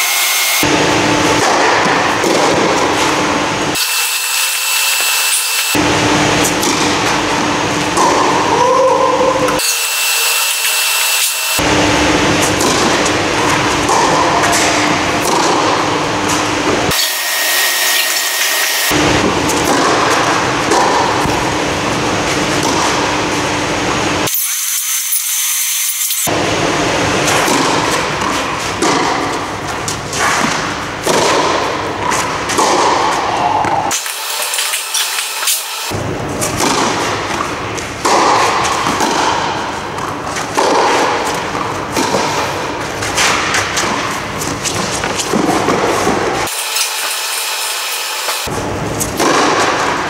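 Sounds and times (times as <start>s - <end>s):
loud steady rushing noise: 0.0s - 24.3s, 26.2s - 50.0s
tennis balls struck by rackets: 0.6s - 3.4s, 6.4s - 8.5s, 12.4s - 17.0s, 19.2s - 21.6s, 22.2s - 23.4s, 27.1s - 34.1s, 35.9s - 46.5s, 48.5s - 50.0s.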